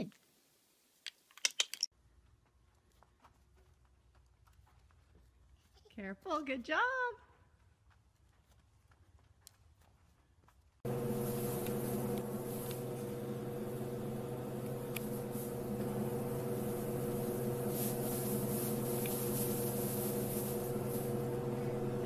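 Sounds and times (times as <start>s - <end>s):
low mechanical hum: 10.8s - 22.0s
faint hiss: 10.9s - 22.0s.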